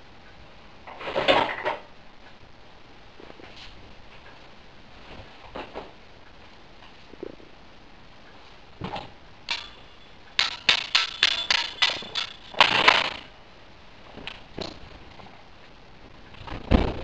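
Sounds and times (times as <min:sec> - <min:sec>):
hard objects knocking and clattering: 0:09.5 - 0:13.3
sharp bangs: 0:09.5 - 0:13.3.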